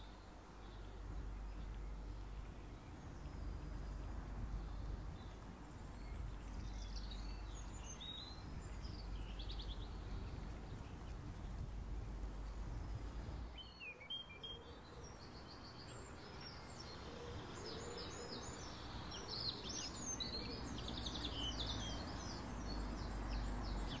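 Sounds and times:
low background rumble: 0.0s - 13.6s
small birds chirping: 0.0s - 24.0s.

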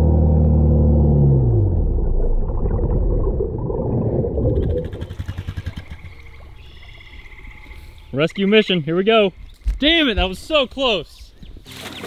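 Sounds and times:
muffled engine underwater: 0.0s - 7.7s
dull churning of water: 1.7s - 7.8s.

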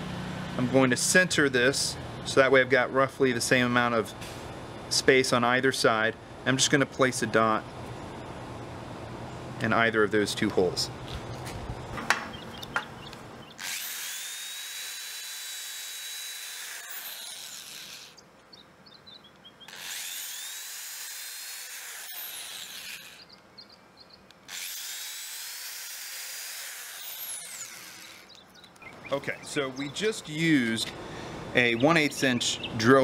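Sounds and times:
electric drill whining: 13.6s - 18.2s, 19.7s - 23.3s, 24.5s - 28.4s.

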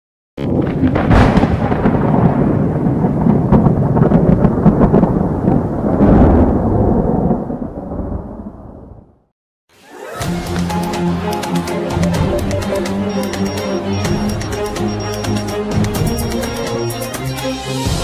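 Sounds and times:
thunder rumbling: 0.4s - 9.3s.

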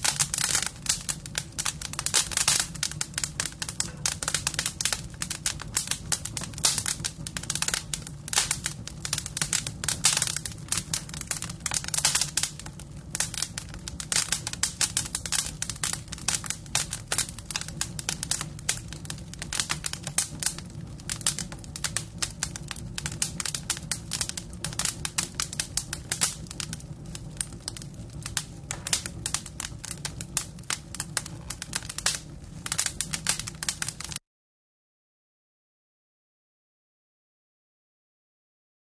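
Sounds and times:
dense crackling clicks: 0.0s - 34.2s.

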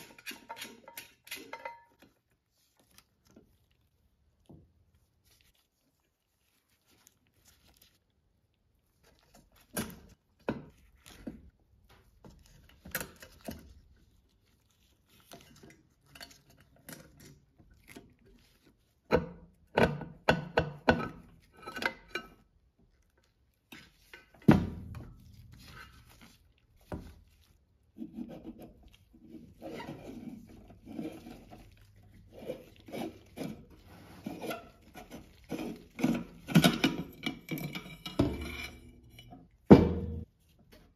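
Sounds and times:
metal lamp base clicks and rattles: 0.0s - 1.9s.

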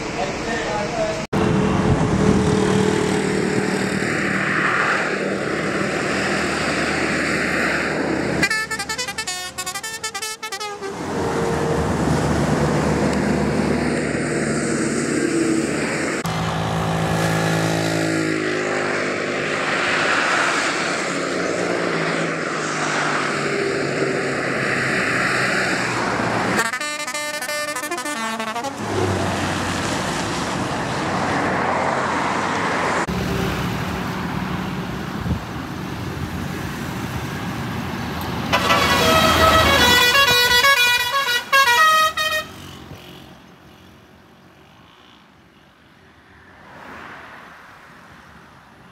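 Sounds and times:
vehicles passing on highway: 0.0s - 48.9s
multi-note pressure horns: 8.4s - 11.0s, 26.6s - 28.8s, 38.5s - 42.8s.

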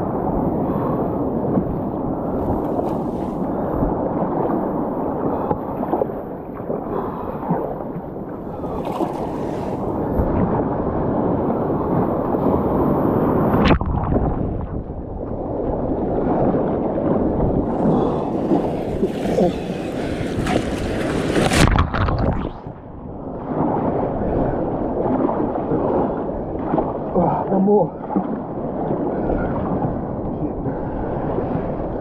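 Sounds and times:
water rushing and sloshing: 0.0s - 32.0s
hissing rush: 17.7s - 21.5s.

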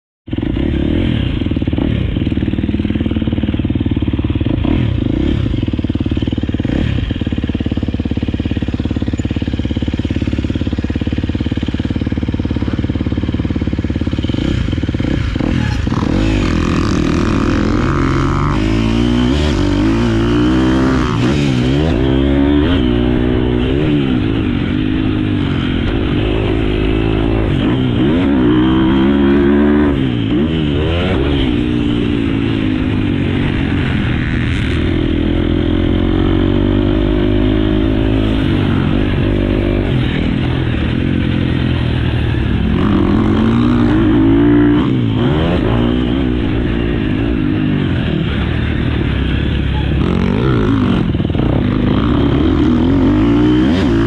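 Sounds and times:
motocross bike engine revving: 0.3s - 54.0s.

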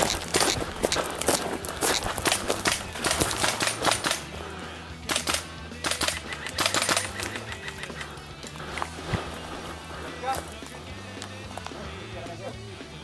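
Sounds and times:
hurried footsteps through scrub: 0.0s - 13.0s
branches scraping clothing: 7.5s - 12.4s.

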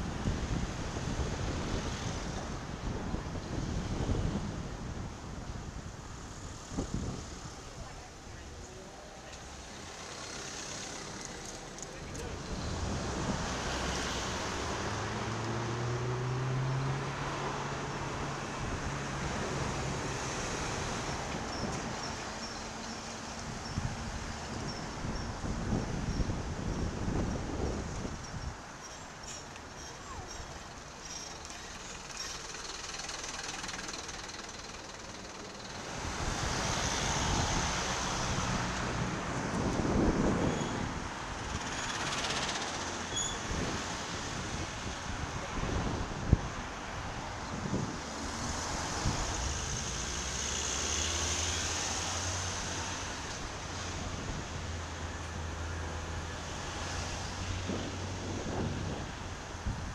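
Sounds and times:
wind rushing over microphone: 0.0s - 8.6s, 10.8s - 22.4s, 23.2s - 28.8s, 35.8s - 59.9s
road traffic: 0.0s - 59.9s
car engine humming: 30.0s - 36.6s.

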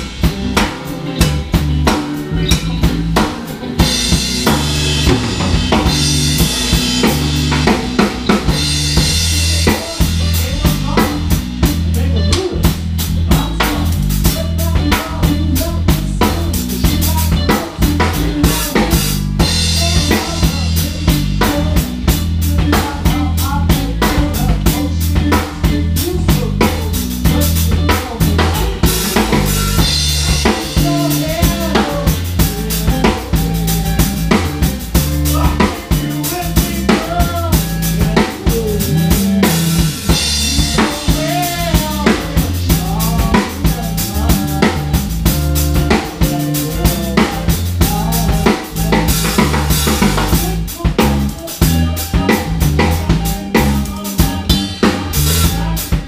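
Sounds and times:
drum kit played hard: 0.0s - 56.0s
electric bass line: 0.0s - 56.0s
electric guitar: 0.0s - 56.0s.

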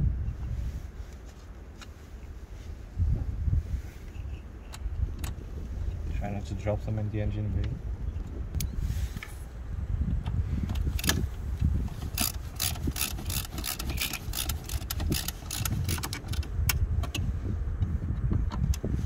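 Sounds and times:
low background rumble: 0.0s - 19.0s
ratchet driver clicking: 10.7s - 17.2s.

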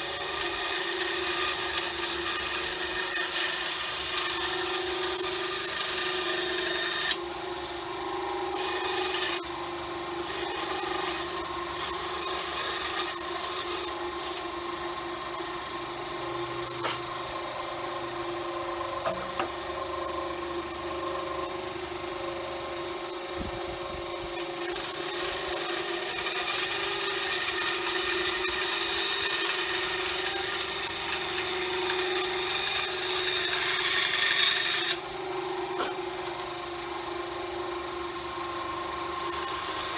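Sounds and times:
bandsaw humming: 0.0s - 39.9s
saw blade cutting wood hiss: 31.2s - 37.4s.

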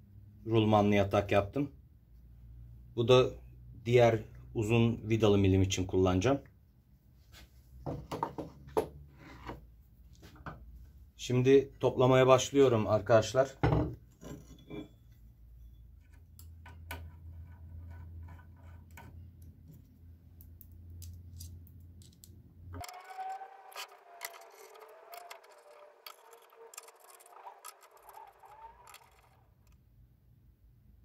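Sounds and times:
small metal parts clinking: 21.0s - 29.8s.

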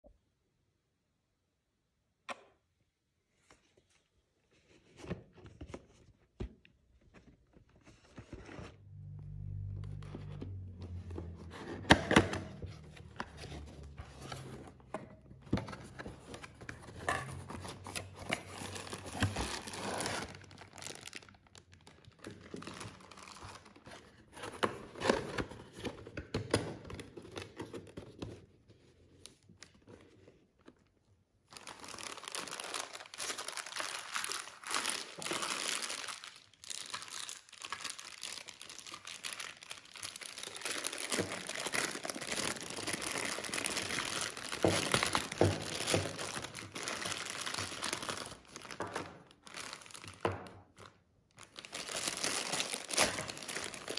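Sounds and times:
cardboard packaging handled: 10.2s - 30.8s, 31.5s - 53.9s
plastic crinkling and tearing: 10.3s - 25.8s, 31.4s - 53.9s.

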